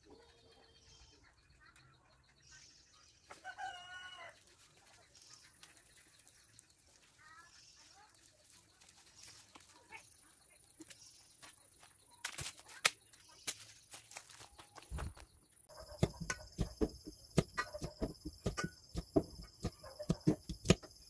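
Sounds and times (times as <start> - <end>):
branches and leaves rustling: 6.8 - 15.3
sharp branch cracks: 12.2 - 15.0.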